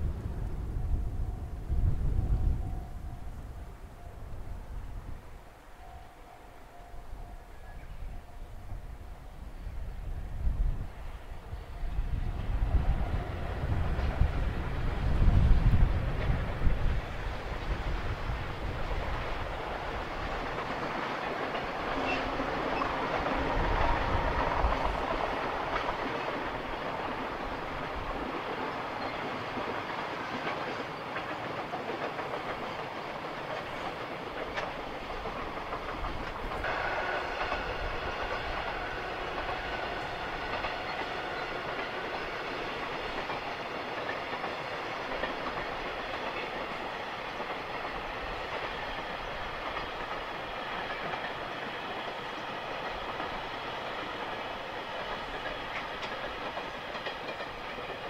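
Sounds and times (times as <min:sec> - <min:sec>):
freight train rolling on rails: 0:00.0 - 0:58.0
thin high ringing tone: 0:05.6 - 0:10.4.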